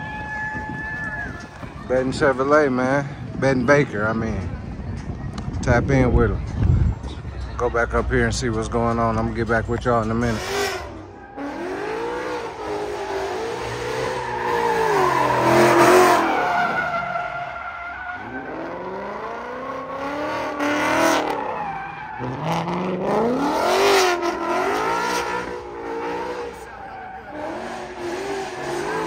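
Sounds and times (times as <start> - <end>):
tyres skidding on asphalt: 6.2 - 29.0
car engine revving: 7.1 - 29.0.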